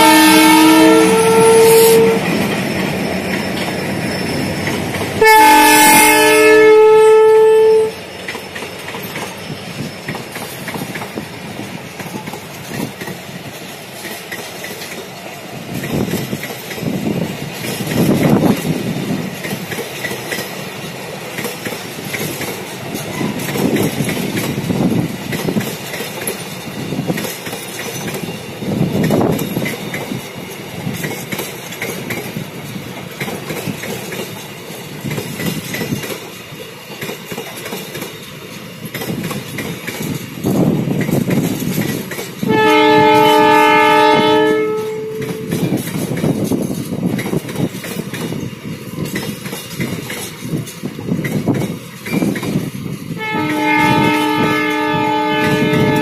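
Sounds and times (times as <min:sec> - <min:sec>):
train horn: 0:00.0 - 0:02.5, 0:05.2 - 0:08.0, 0:42.4 - 0:45.7, 0:53.2 - 0:56.0
train wheels clattering over rail joints: 0:00.4 - 0:56.0.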